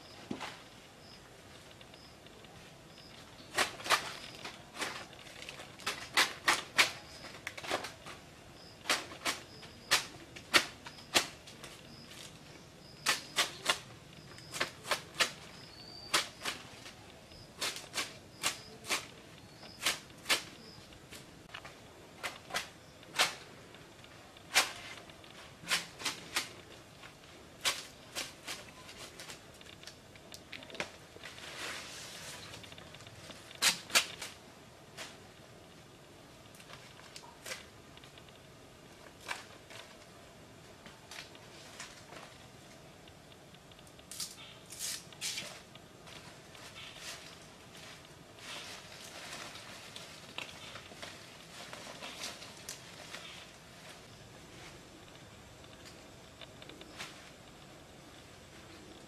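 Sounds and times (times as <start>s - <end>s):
faint high chirp: 15.4s - 16.6s.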